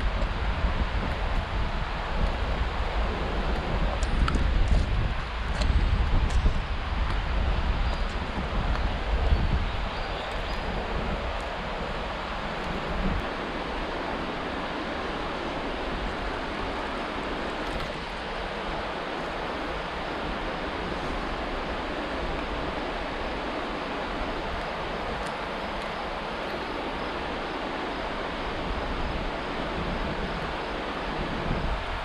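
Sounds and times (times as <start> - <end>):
river water rushing: 0.0 - 32.0
wind on microphone: 0.0 - 32.0.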